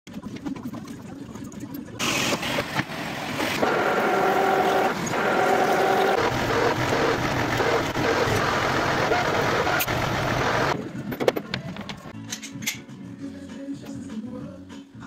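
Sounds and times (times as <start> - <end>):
loud steady machine sound: 2.0 - 10.8
workshop noise: 2.0 - 13.0
whining tone of lathe cut: 3.6 - 10.8.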